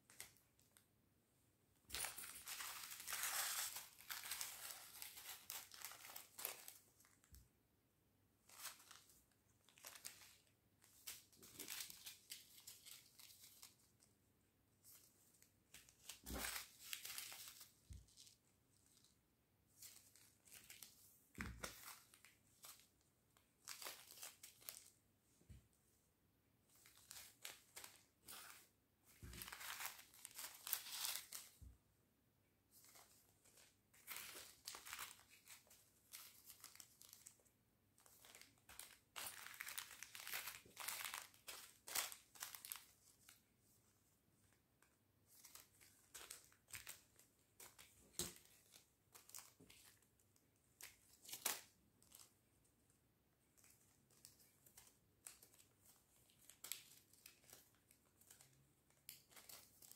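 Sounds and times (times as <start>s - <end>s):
plastic bags crinkling: 1.9s - 7.2s, 16.0s - 18.3s, 23.6s - 24.9s, 29.2s - 31.5s, 33.0s - 37.4s, 38.1s - 42.9s.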